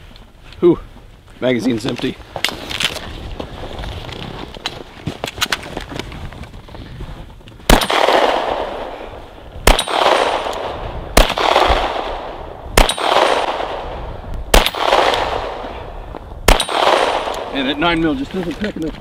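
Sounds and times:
pistol shots with echo: 7.7s - 17.7s.

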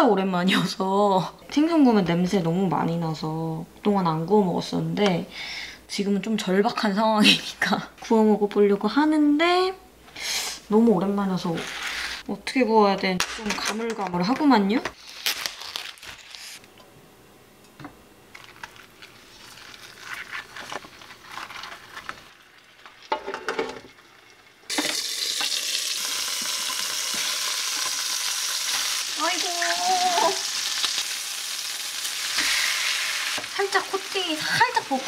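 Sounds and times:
fish frying in oil: 23.9s - 35.0s.

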